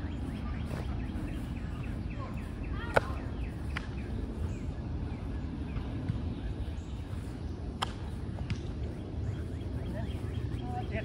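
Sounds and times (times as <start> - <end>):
low outdoor rumble: 0.0 - 11.0
small birds chirping: 0.0 - 11.0
sharp slap: 7.8 - 8.6.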